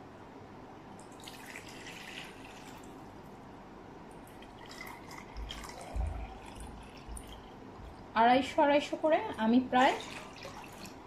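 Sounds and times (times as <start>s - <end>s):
water pouring and splashing: 4.3s - 8.1s, 9.3s - 11.0s.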